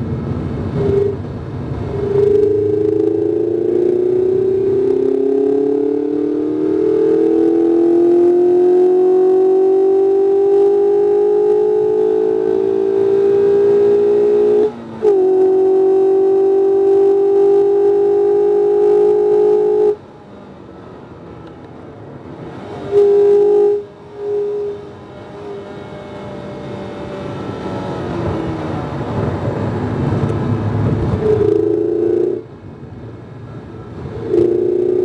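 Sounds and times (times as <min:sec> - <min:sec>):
car engine pulling hard: 0:00.0 - 0:35.0.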